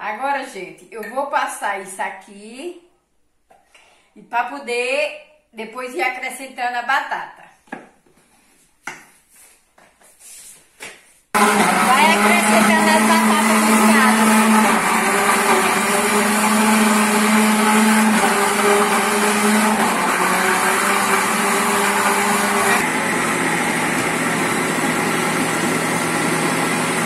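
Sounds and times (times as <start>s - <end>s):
blender motor running: 11.4s - 27.0s.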